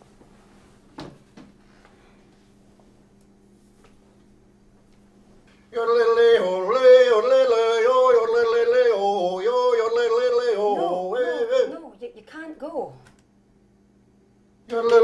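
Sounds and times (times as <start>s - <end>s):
faint low hum: 0.0s - 15.0s
person yodeling: 5.8s - 12.0s, 14.7s - 15.0s.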